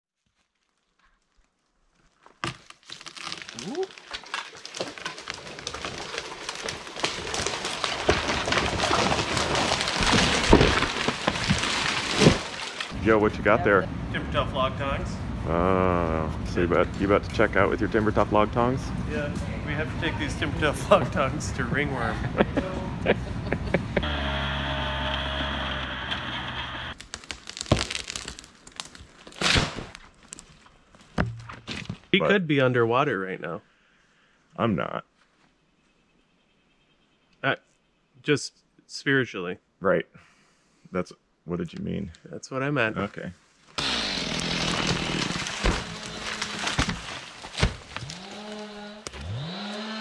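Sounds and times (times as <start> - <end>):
wood cracking: 0.2 - 13.0, 24.0 - 32.2, 43.7 - 49.8
heavy thuds of falling tree: 4.7 - 12.9, 43.8 - 48.6
branches swishing: 5.4 - 13.0, 43.6 - 49.7
snowmobile engine running: 23.9 - 27.0.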